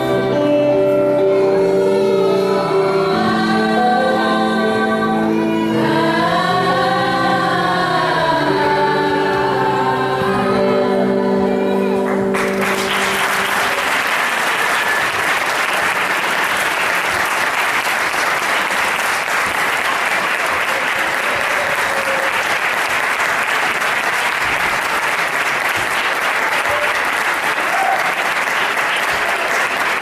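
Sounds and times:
audience applauding: 12.1s - 30.0s.

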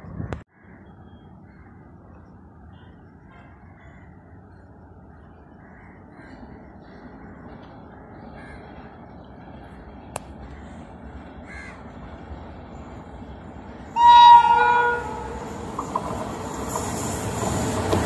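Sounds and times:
distant crows cawing: 5.1s - 7.4s, 10.4s - 12.0s
train horn blast: 13.9s - 15.9s.

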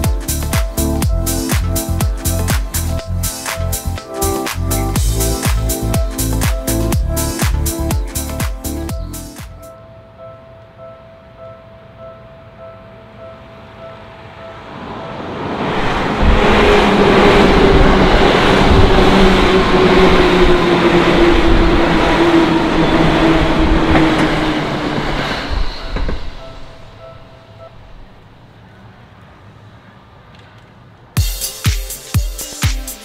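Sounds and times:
electric train passing: 0.0s - 32.6s
level crossing warning bell: 25.6s - 28.4s.

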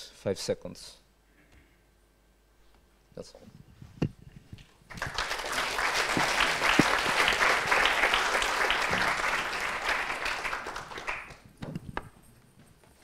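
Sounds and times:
audience applauding: 4.9s - 11.4s.

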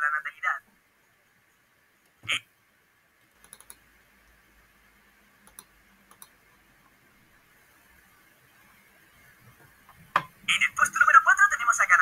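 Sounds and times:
mouse and keyboard clicks: 3.4s - 3.8s, 5.4s - 6.4s.

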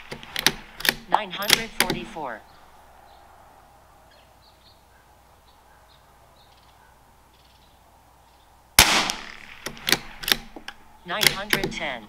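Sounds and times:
rifle bolt clicks: 0.0s - 2.1s, 8.8s - 11.8s
faint bird chirps: 2.4s - 8.6s
rifle shot with echo: 8.8s - 10.6s.

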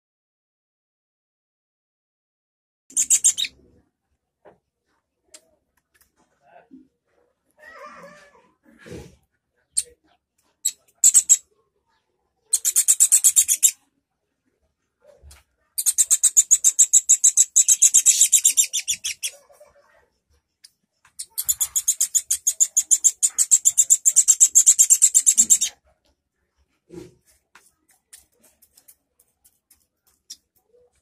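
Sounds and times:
fledgling bird begging chirps: 15.8s - 19.4s.

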